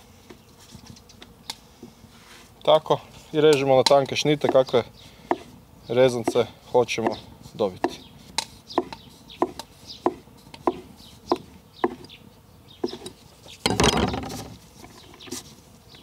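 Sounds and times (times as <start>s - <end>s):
knife chopping dough: 3.8s - 5.5s, 6.2s - 8.0s, 8.7s - 12.1s.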